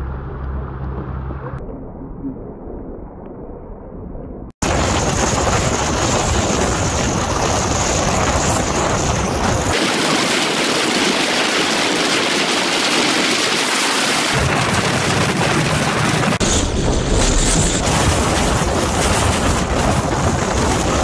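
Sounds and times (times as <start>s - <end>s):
car road noise on highway: 0.0s - 1.6s
wind rushing: 4.6s - 21.0s.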